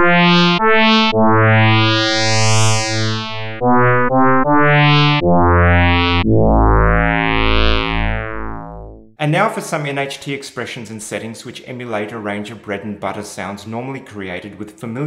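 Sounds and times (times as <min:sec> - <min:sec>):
synthesizer melodic phrase: 0:00.0 - 0:09.2.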